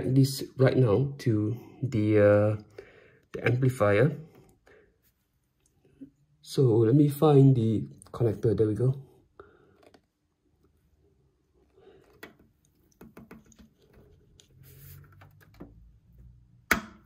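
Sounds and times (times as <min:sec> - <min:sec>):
cable clicks and rustling: 0:09.7 - 0:10.8, 0:11.6 - 0:16.5.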